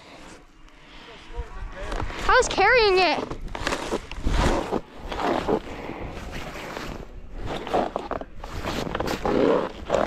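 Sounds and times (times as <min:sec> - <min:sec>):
scraping and scuffing in snow: 0:02.9 - 0:10.0.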